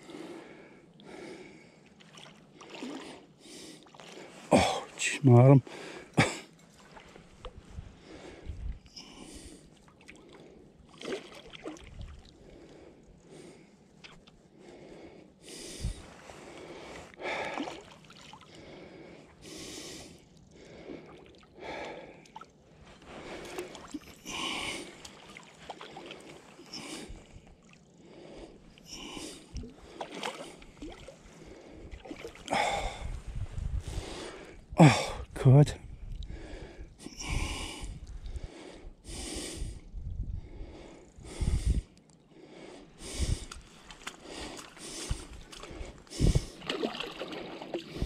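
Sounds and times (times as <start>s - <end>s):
man breathing heavily and gasping: 0.0s - 1.8s, 3.4s - 5.0s, 5.6s - 6.6s, 7.8s - 9.7s, 14.5s - 22.4s, 23.1s - 25.2s, 25.9s - 27.4s, 28.0s - 35.4s, 36.3s - 46.7s.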